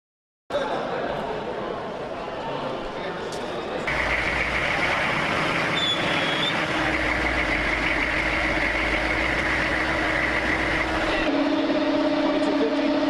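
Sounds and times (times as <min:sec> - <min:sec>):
diesel engine idling: 0:03.9 - 0:11.3.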